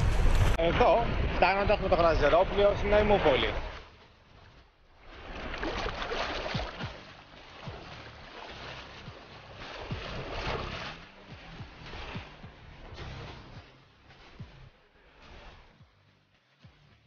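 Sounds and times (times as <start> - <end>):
wind noise: 0.0 - 3.9
water rushing and splashing: 0.0 - 16.2.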